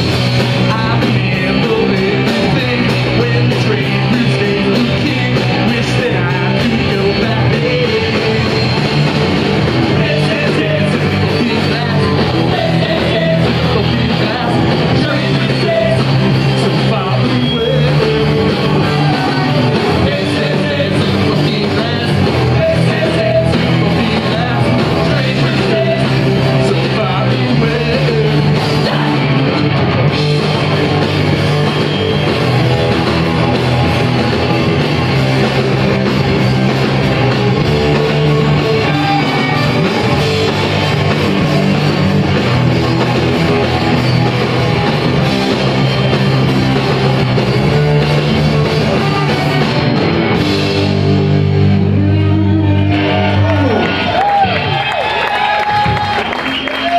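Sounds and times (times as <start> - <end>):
live punk rock band: 0.0 - 56.9.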